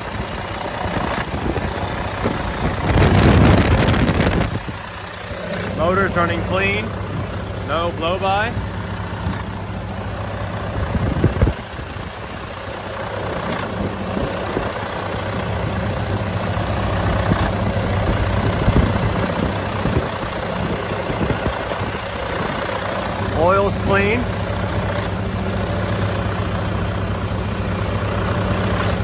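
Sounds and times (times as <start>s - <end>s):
diesel engine idling: 0.0s - 29.0s.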